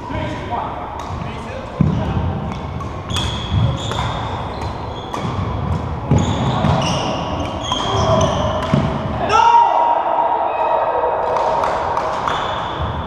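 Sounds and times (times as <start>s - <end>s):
racket hitting shuttlecock: 0.9s - 9.2s
shoe squeaks on floorboards: 3.0s - 8.8s, 12.3s - 13.0s.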